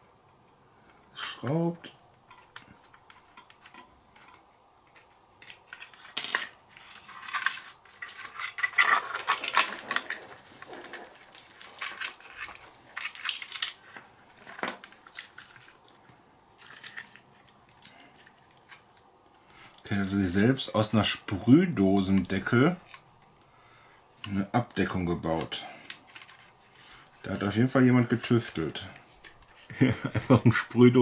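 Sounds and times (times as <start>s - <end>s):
small parts clicking and rattling: 2.2s - 20.2s, 25.7s - 29.7s.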